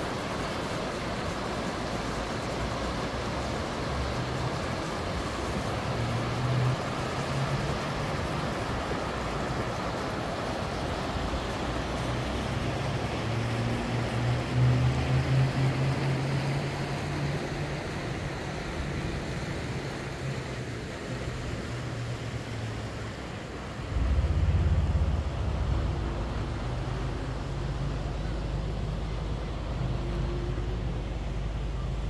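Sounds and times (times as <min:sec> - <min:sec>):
river water rushing: 0:00.0 - 0:32.0
wind buffeting microphone: 0:23.7 - 0:29.1.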